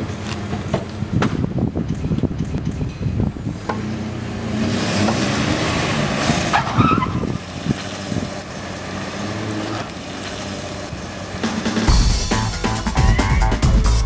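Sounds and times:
car engine revving: 3.4s - 14.0s
tire squeal: 3.5s - 11.9s.

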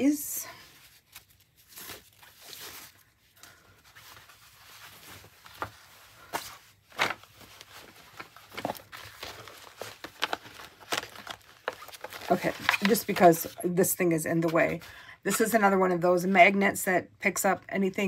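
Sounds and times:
fabric rustling: 0.4s - 14.9s
plastic packaging crinkling: 0.7s - 13.6s.

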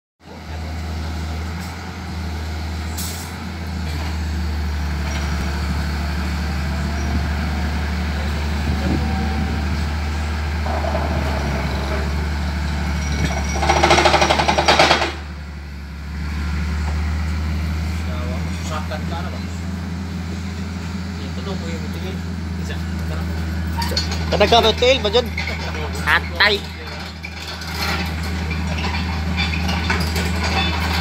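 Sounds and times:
excavator engine running: 0.3s - 31.0s
vibratory pile driver drone: 3.6s - 24.4s
loud rapid rattling: 13.1s - 15.3s.

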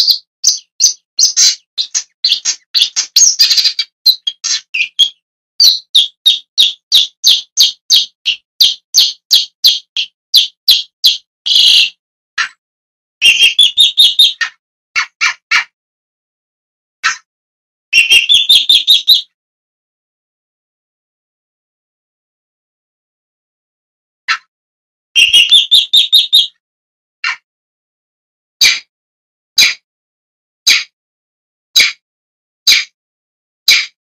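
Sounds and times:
bird calling harsh notes: 0.0s - 12.6s, 13.2s - 15.7s, 18.0s - 19.3s, 25.2s - 26.6s.

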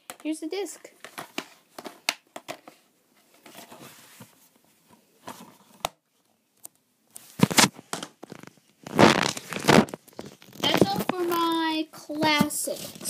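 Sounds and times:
rustling scrapes: 3.2s - 4.5s, 7.2s - 11.6s, 12.3s - 13.0s.

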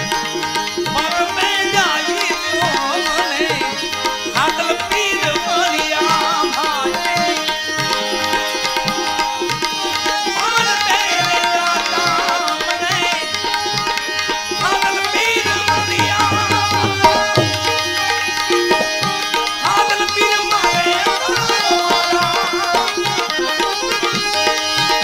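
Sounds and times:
sliding melodic line: 0.0s - 25.0s
tabla playing a rhythm: 0.0s - 25.0s.

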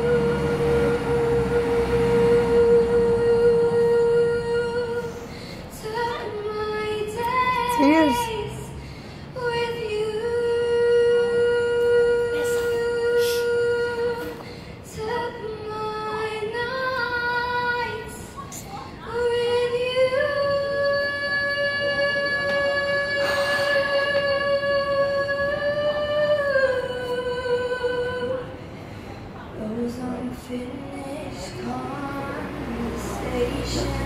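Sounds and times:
woman singing long notes: 0.0s - 5.2s, 5.8s - 8.7s.

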